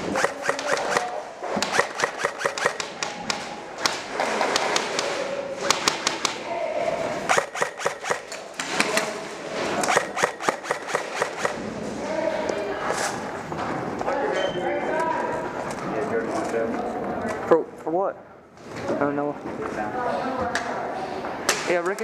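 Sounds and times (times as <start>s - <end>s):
airsoft guns firing bursts: 0.0s - 6.4s, 7.3s - 9.1s, 9.8s - 11.6s.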